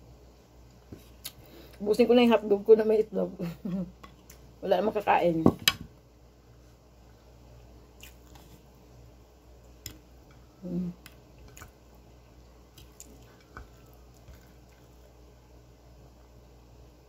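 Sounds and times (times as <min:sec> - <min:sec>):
chewing: 0:08.0 - 0:08.6, 0:11.0 - 0:12.0, 0:12.7 - 0:15.1
fingers squishing food on a plate: 0:09.7 - 0:12.0, 0:12.7 - 0:15.2
person humming mm: 0:10.6 - 0:11.1.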